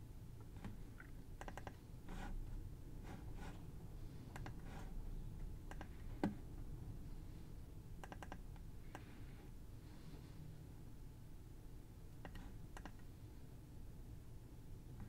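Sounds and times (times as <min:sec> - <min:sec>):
computer mouse clicks: 0:01.4 - 0:01.8, 0:04.3 - 0:04.7, 0:05.7 - 0:06.4, 0:08.0 - 0:09.1, 0:12.2 - 0:13.0
keyboard clicks: 0:01.4 - 0:01.8, 0:05.7 - 0:05.9, 0:08.0 - 0:09.0, 0:12.2 - 0:13.0.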